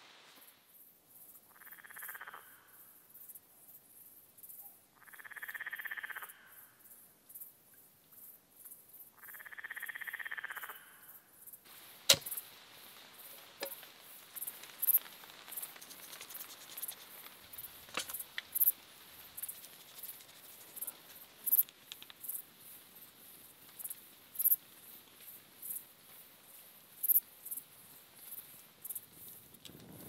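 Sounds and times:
crickets chirping: 0:00.4 - 0:30.0
sharp knocks: 0:12.1 - 0:12.4.

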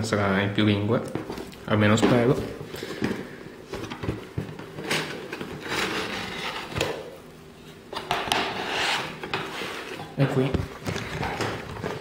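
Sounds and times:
cardboard scraping and rustling: 0:03.7 - 0:07.0.

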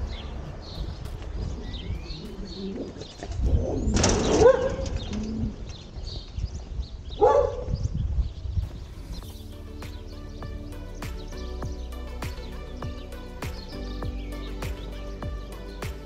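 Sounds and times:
small birds chirping: 0:00.0 - 0:16.0
loud pitched bird calls: 0:09.2 - 0:16.0.

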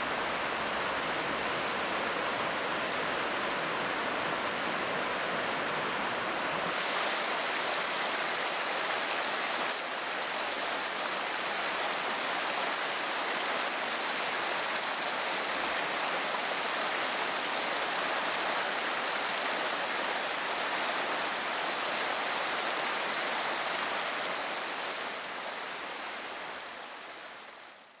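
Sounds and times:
river rushing over rapids: 0:00.0 - 0:27.9.

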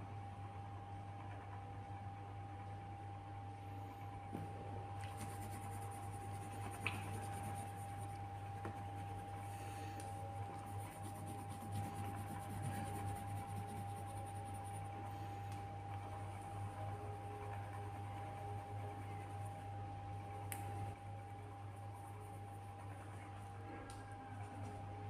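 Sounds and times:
electrical hum: 0:00.0 - 0:25.0
thin constant tone: 0:05.0 - 0:25.0
pencil on paper: 0:05.1 - 0:09.5, 0:10.4 - 0:14.9.

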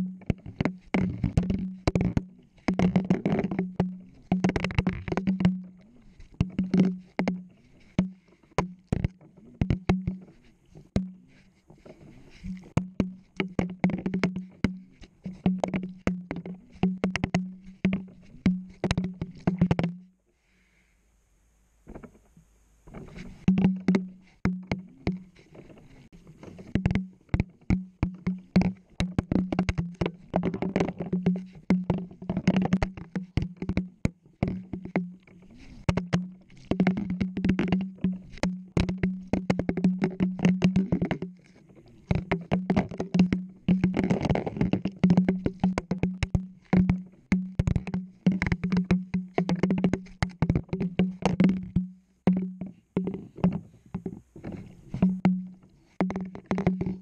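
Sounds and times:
knocks and clatter in drum: 0:00.0 - 0:11.2, 0:11.8 - 0:20.0, 0:22.9 - 0:57.0.

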